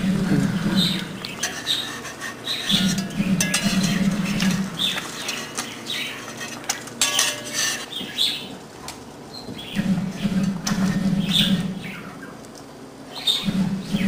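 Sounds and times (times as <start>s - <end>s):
low hum: 0.0s - 7.9s, 9.6s - 12.4s, 13.3s - 14.0s
bird chirps: 0.5s - 6.3s, 9.3s - 12.4s, 13.1s - 14.0s
egg frying: 0.9s - 7.6s
spatula scraping a skillet: 1.2s - 8.0s.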